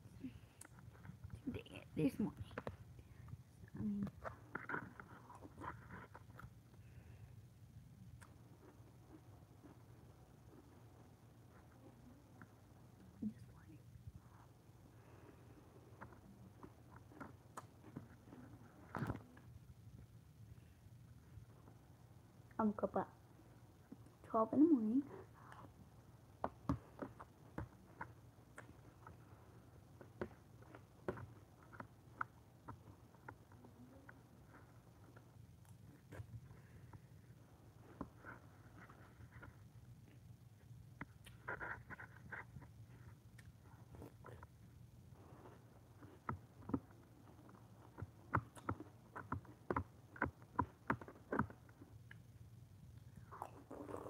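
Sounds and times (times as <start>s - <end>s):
mouth sounds: 53.2s - 54.0s.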